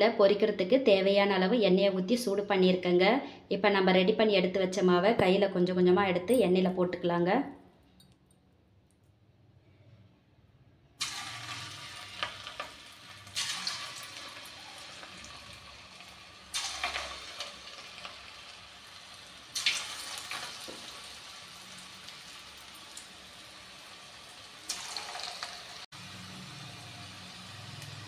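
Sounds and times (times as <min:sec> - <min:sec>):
batter sizzling in hot oil: 0:11.0 - 0:28.0.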